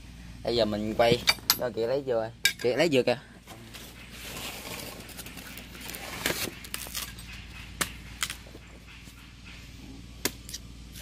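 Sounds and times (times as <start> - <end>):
machete chopping coconut: 6.2 - 8.4, 10.2 - 11.0.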